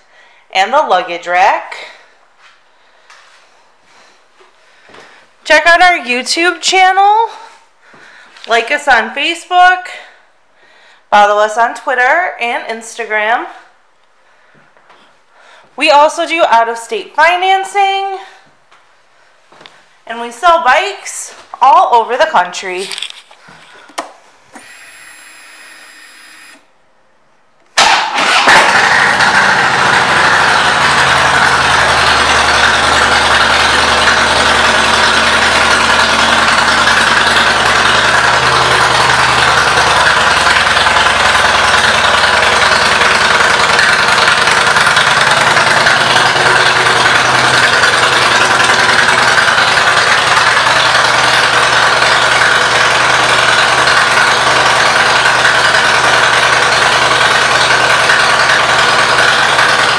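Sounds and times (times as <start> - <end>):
motorcycle engine starting and idling: 27.7 - 59.9.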